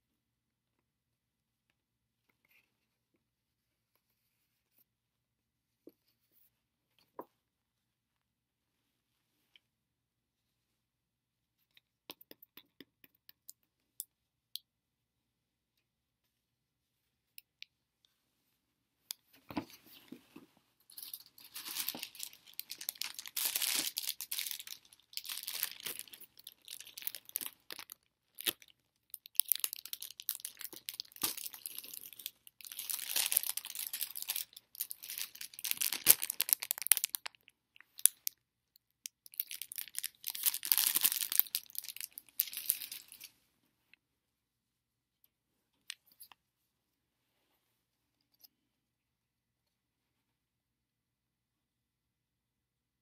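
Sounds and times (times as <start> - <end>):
paper rustling and crinkling: 19.6 - 28.0.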